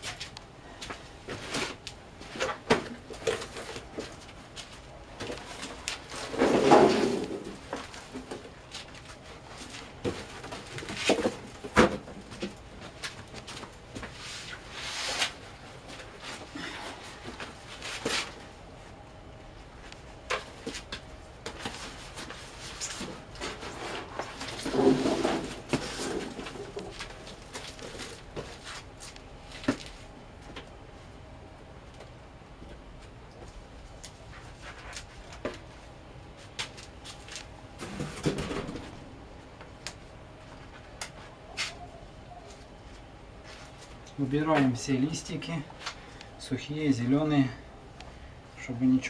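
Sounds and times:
rustling and clatter: 1.3 - 18.5, 20.3 - 30.6
grapes rustling in metal hopper: 23.1 - 26.9.

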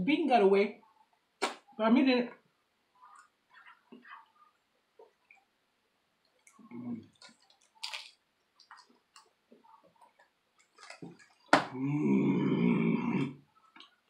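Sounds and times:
person chewing: 6.2 - 11.8.

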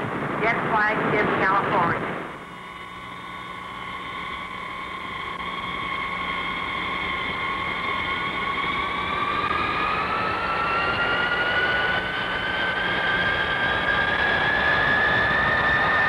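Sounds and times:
jet engine whine rising: 0.0 - 16.0.

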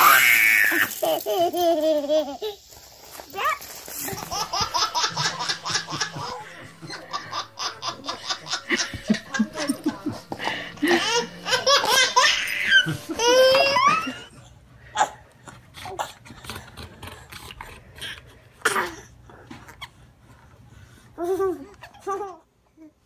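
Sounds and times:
baby laughing: 0.0 - 2.7, 4.0 - 14.4.

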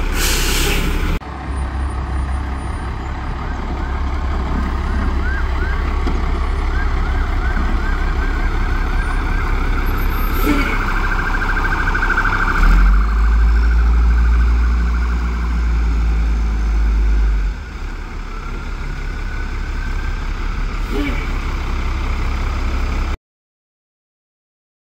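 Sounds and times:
garbage truck diesel engine: 0.0 - 23.2
siren yelping and wailing: 4.8 - 15.6.

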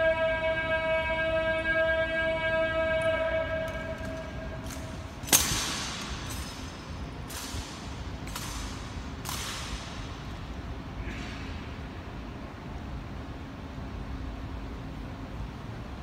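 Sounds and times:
held ringing tone: 0.0 - 5.1.

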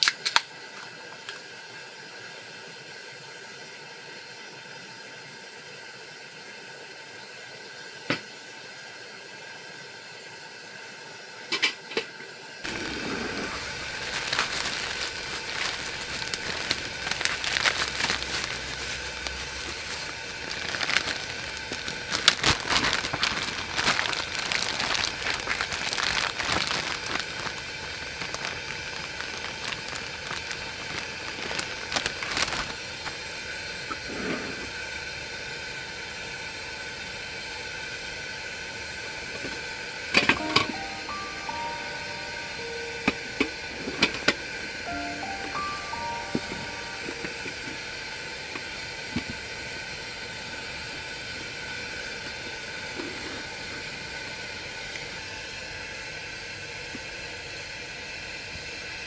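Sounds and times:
plastic bag crinkling: 12.7 - 33.3, 40.4 - 42.0, 43.8 - 47.8.

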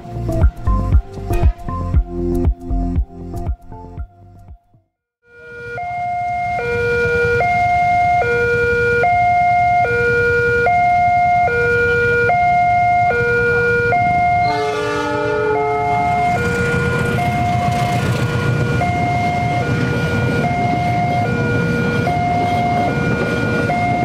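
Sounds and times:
two-tone crossing alarm: 5.3 - 24.0
train rumbling: 6.4 - 24.0
train horn chord: 13.6 - 24.0
motorcycle engines idling: 15.8 - 19.7.

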